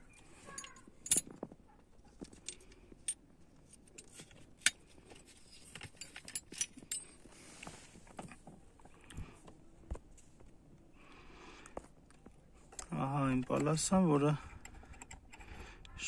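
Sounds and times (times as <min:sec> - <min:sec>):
metallic clicks and clinks: 0:00.5 - 0:01.4.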